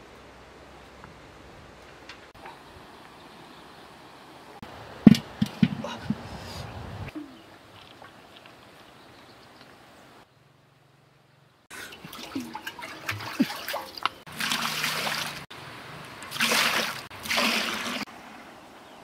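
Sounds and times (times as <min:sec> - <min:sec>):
water splashing into metal wok: 0:11.9 - 0:15.4, 0:16.2 - 0:18.0.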